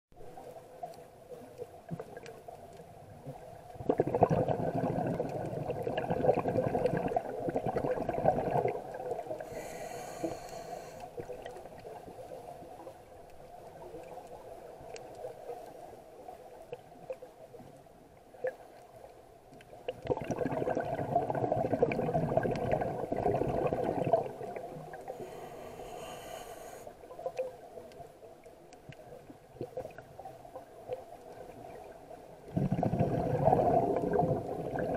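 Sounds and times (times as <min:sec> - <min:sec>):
bubbling regulator exhalations: 0:03.8 - 0:09.9, 0:20.0 - 0:24.6, 0:32.5 - 0:34.9
regulator inhaling hiss: 0:09.4 - 0:11.2, 0:25.1 - 0:27.0.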